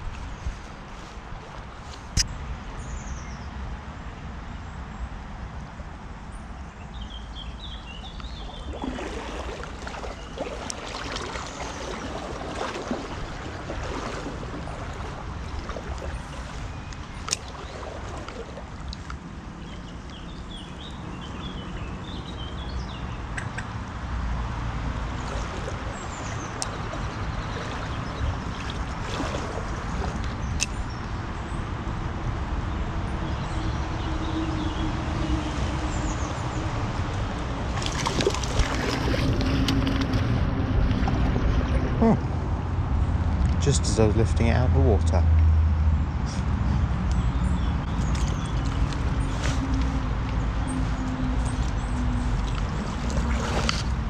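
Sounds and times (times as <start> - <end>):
river water rushing: 7.9 - 22.6, 24.4 - 30.9, 34.6 - 43.3, 47.8 - 54.0.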